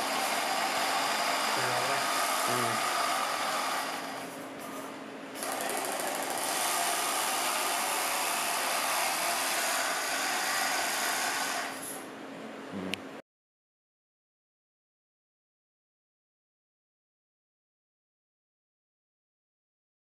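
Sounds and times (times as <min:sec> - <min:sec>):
electric motors whirring: 0:00.0 - 0:04.4, 0:05.4 - 0:11.9.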